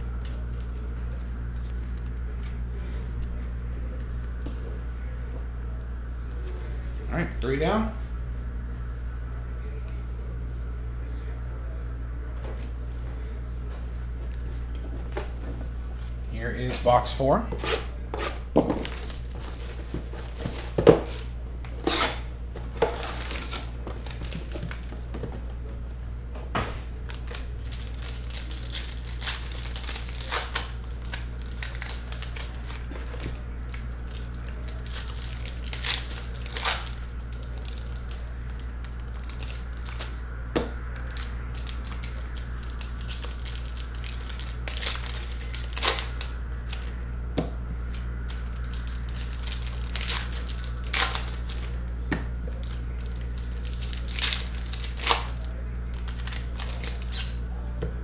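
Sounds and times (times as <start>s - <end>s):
steady low hum: 0.0s - 58.0s
foil wrappers tearing and crinkling: 18.1s - 25.0s, 26.9s - 40.2s, 41.0s - 47.0s, 47.8s - 57.4s.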